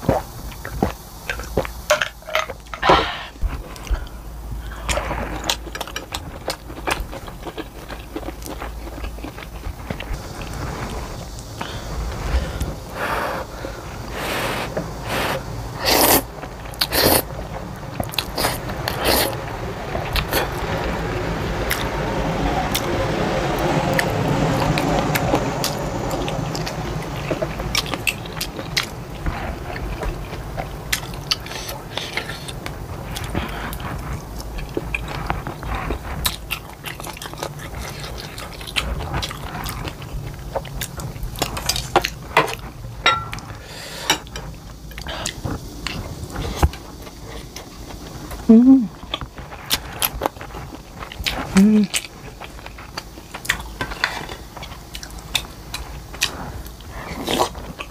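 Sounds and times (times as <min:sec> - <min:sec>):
noodles slurped: 0:11.6 - 0:17.3, 0:18.0 - 0:19.4.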